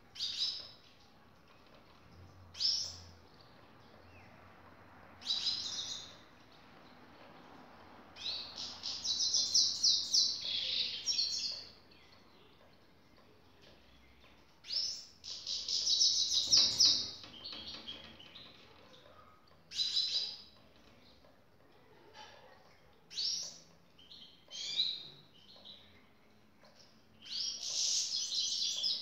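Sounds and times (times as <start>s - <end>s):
goldfinch twittering song: 14.1s - 18.4s.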